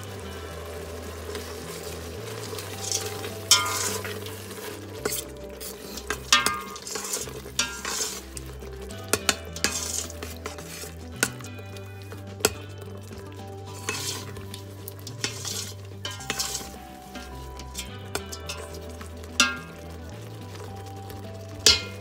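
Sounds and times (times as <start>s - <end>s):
sauce sizzling: 0.0s - 22.0s
metal spoon scraping a pot: 2.6s - 19.9s.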